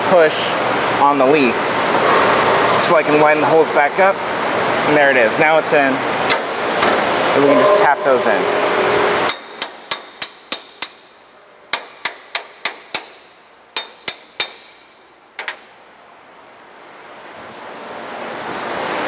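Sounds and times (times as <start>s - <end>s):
hammer tapping steel pins: 11.8s - 15.0s.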